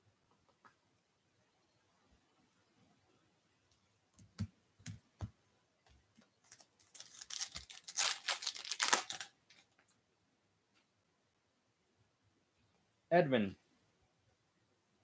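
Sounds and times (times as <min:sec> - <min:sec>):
foil wrapper tearing and crinkling: 0:06.4 - 0:09.6.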